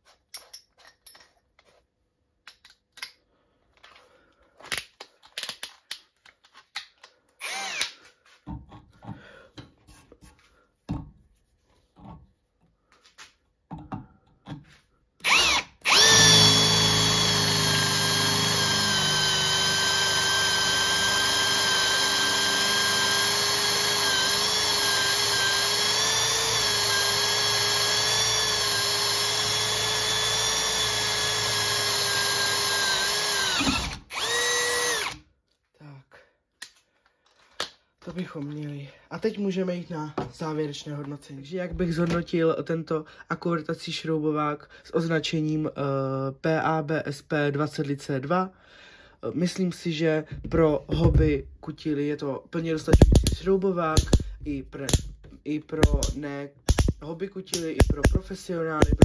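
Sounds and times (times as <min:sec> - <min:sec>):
cordless drill drilling metal: 0:07.4 - 0:08.0, 0:15.2 - 0:35.2, 0:52.9 - 0:55.1, 0:55.8 - 0:57.0, 0:57.6 - 0:59.0.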